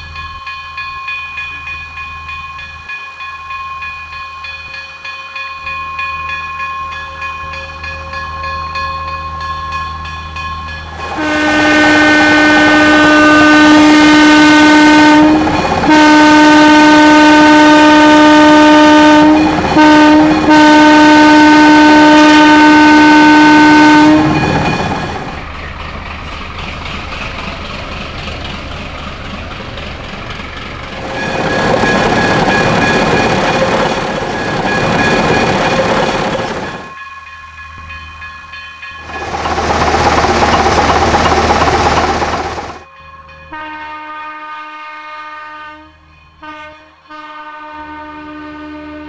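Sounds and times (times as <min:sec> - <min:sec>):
railcar running on track: 0:00.0 - 0:49.0
railcar horn blowing: 0:11.0 - 0:24.7, 0:43.5 - 0:49.0.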